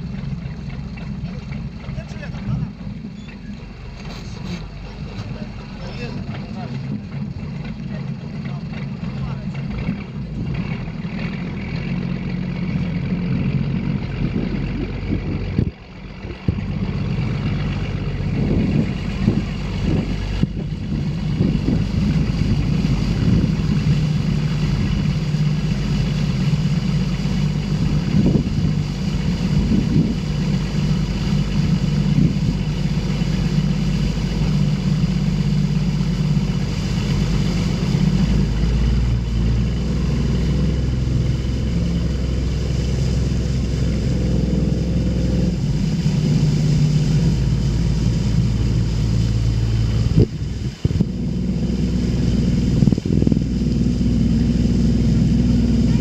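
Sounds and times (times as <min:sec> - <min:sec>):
boat engine running: 0:00.0 - 0:56.0
water noise: 0:00.0 - 0:56.0
wind noise: 0:13.6 - 0:56.0.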